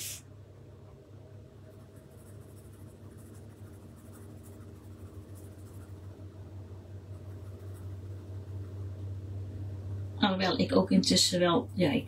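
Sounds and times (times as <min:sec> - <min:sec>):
steady low hum: 0:00.0 - 0:12.0
pencil scratching on paper: 0:01.7 - 0:06.0, 0:07.1 - 0:07.9.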